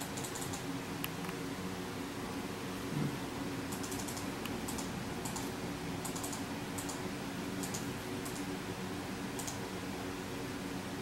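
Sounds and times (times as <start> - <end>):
keyboard keys clicking: 0.0 - 0.6, 3.7 - 7.0, 7.6 - 8.4, 9.4 - 9.6
desktop computer humming: 0.0 - 11.0.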